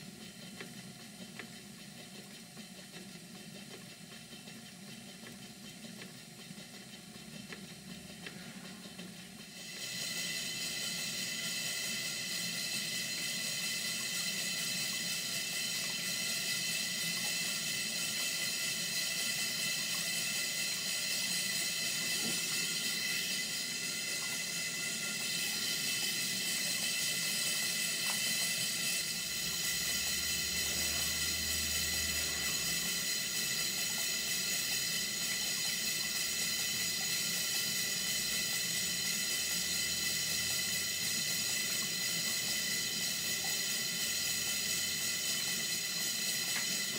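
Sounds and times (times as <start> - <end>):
steam hissing: 0.0 - 46.9.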